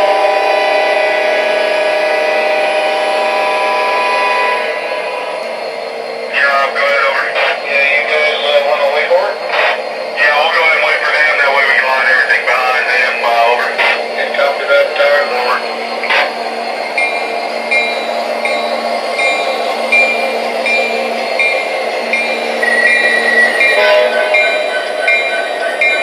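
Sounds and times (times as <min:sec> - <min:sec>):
diesel engine drone: 0:00.0 - 0:26.0
ringing bell tone: 0:17.0 - 0:26.0.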